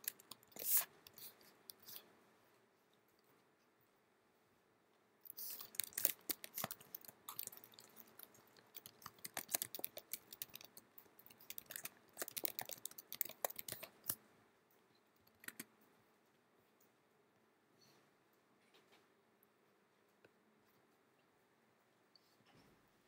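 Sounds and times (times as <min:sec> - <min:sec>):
typing on computer keyboard: 0:05.5 - 0:14.2.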